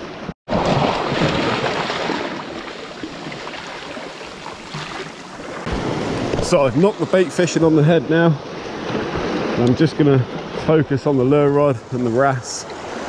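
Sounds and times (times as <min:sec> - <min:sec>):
waves washing over rocks: 0:00.5 - 0:11.2.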